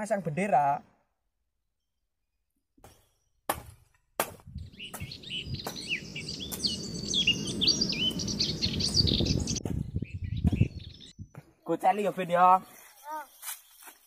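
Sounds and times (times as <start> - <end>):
birds chirping: 4.5 - 14.0.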